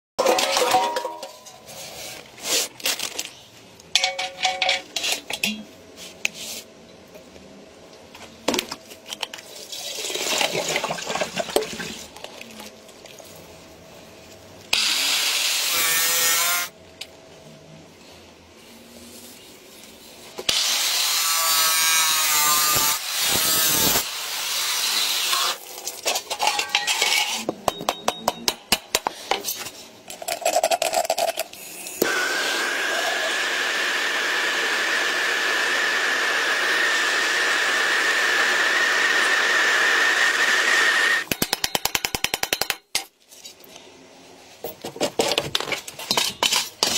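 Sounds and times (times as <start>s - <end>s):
power tool cutting metal: 14.7s - 16.8s, 20.5s - 25.6s, 32.0s - 41.3s.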